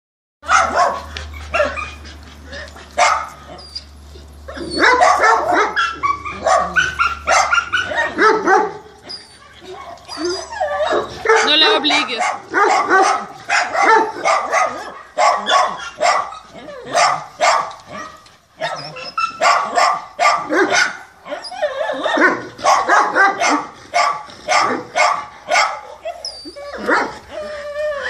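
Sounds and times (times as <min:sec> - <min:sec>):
dog barking: 0:00.4 - 0:02.0, 0:03.0 - 0:03.4, 0:04.6 - 0:08.8, 0:10.6 - 0:21.0, 0:21.9 - 0:26.2.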